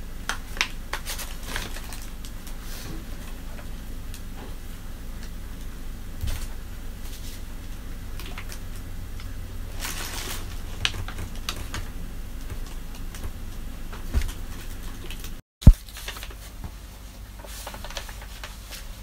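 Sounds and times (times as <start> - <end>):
paper rustling: 9.7 - 13.4, 14.0 - 19.0.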